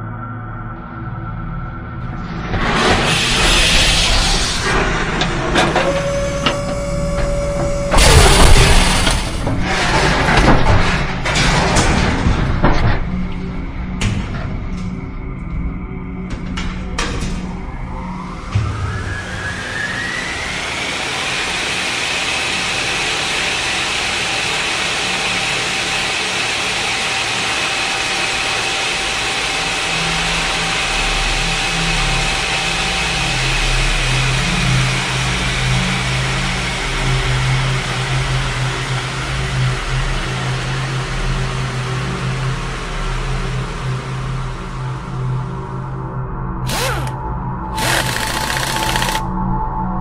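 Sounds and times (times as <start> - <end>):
engine-like mechanical roar: 0.0 - 49.6
rising whine: 17.7 - 22.8, 46.7 - 49.2.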